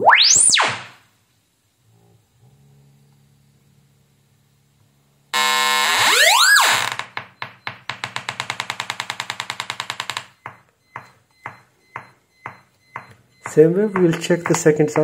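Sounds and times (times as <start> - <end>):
gliding test tone from speakers: 5.4 - 7.0.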